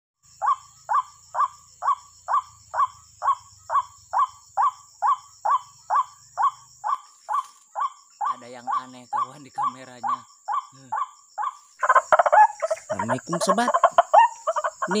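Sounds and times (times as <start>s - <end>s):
waterhen calling: 11.4s - 15.0s.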